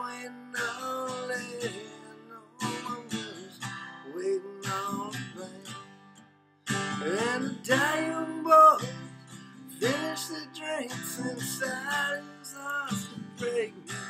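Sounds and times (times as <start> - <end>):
acoustic guitar strummed: 0.0 - 14.0
wordless vocal: 7.0 - 9.1.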